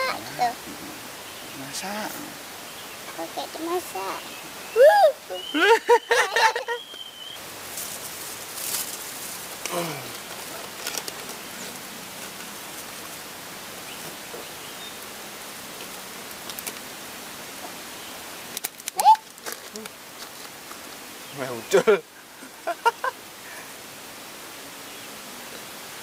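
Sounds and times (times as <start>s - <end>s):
outdoor hiss: 0.0s - 26.0s
light clicks and rustles of net: 7.7s - 13.2s, 18.5s - 20.8s.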